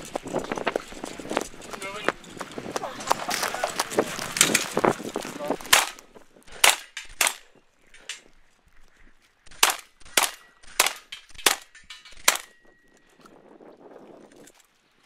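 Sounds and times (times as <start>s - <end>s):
gunshots hitting steel targets: 5.6s - 8.2s, 9.5s - 12.8s.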